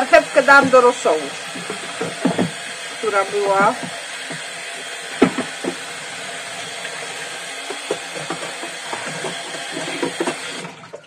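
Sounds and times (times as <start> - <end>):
tap running into sink: 0.5 - 2.8, 5.2 - 11.0
dishes knocking: 1.5 - 2.6, 7.6 - 11.0.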